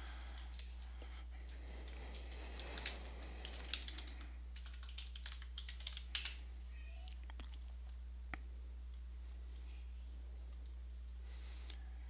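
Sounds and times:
computer keyboard typing: 1.9 - 6.4.

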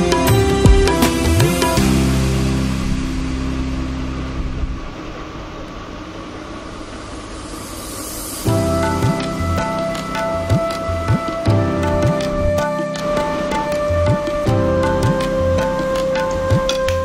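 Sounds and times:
plucked-string melody: 0.0 - 5.0, 8.5 - 17.0
low held drone: 0.0 - 17.0
hiss-like noise wash: 1.0 - 17.0.

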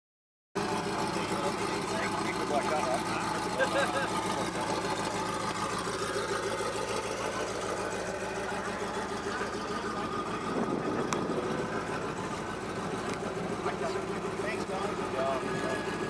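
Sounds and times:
car engine idling: 0.6 - 16.0.

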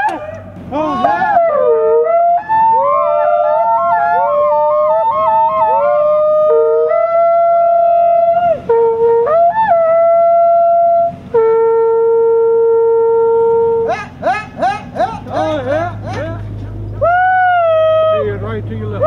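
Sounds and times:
cow horn blowing: 6.2 - 16.4.

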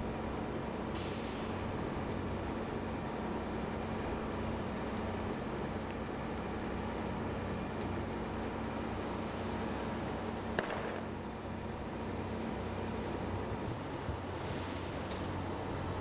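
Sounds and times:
fire rumbling: 0.0 - 16.0
sharp crack: 10.6 - 11.1.

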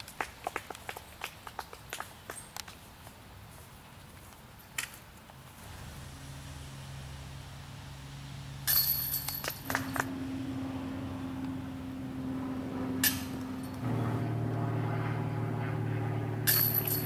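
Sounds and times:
steady low hum: 5.4 - 17.0
disc hitting basket chains: 8.6 - 10.1, 13.0 - 13.8, 16.5 - 17.0.

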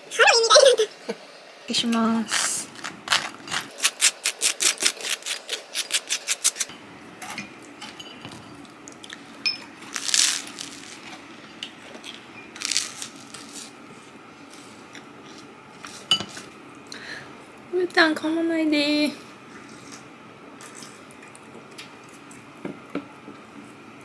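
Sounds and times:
crunching bites into toast: 2.3 - 6.7, 9.9 - 11.0
knife scraping toast: 2.3 - 6.7.

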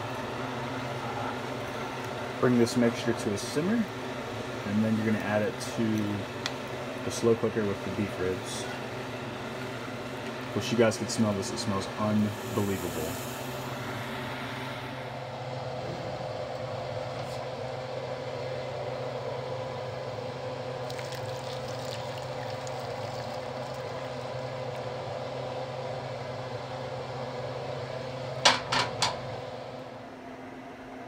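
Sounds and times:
steady hum: 0.0 - 31.0
liquid splashing: 20.8 - 23.9.

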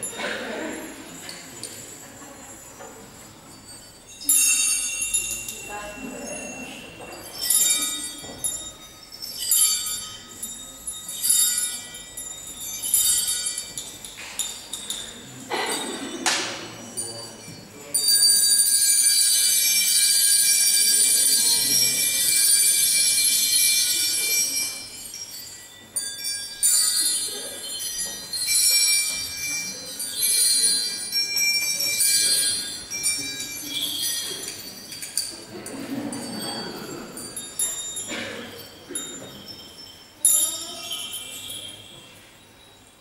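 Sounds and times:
bells ringing: 0.0 - 43.0.

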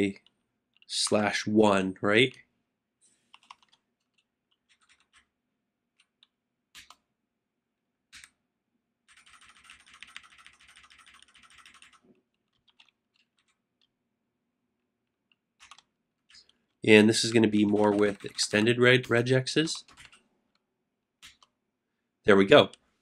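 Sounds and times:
faint keyboard typing: 0.0 - 1.0, 3.1 - 7.1, 8.1 - 8.4, 9.0 - 13.9, 15.0 - 21.6.

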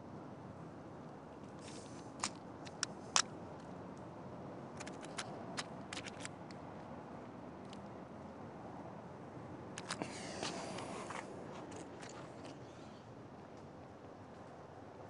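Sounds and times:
low steady hiss: 0.0 - 15.0
light sharp clicks and taps: 1.4 - 4.1.

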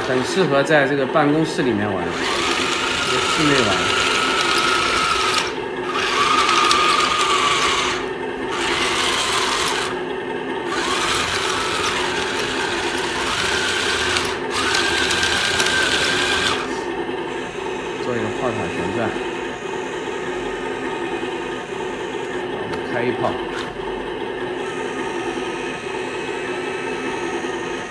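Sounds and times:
toy tank motors whirring: 2.1 - 10.0, 10.7 - 16.8.

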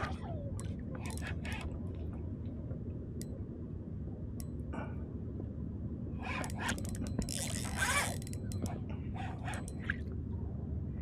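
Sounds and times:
low background rumble: 0.0 - 11.0
faint light ticks: 0.6 - 3.5, 4.3 - 4.7.

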